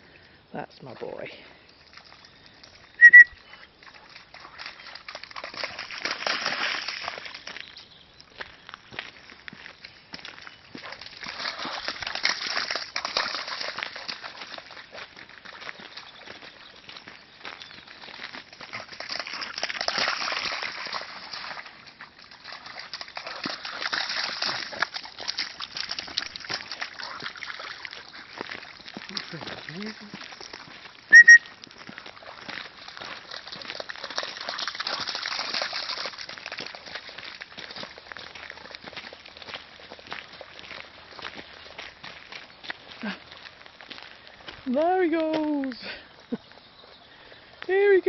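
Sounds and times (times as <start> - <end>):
short high chirps: 3.0 - 3.4, 31.1 - 31.5
dog digging in mud: 10.8 - 15.6, 18.4 - 30.7, 32.1 - 38.8.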